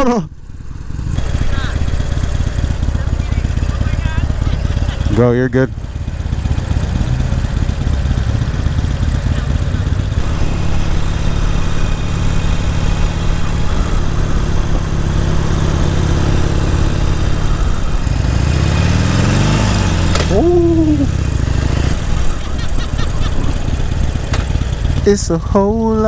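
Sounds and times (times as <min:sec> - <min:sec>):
motorcycle engine running: 0:00.0 - 0:26.0
rush of noise: 0:09.4 - 0:24.5.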